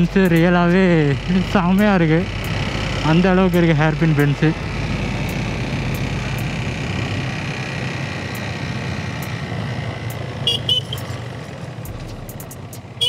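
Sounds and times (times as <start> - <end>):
motorcycle engine running: 0.0 - 13.0
vehicle horn toots: 10.4 - 11.2.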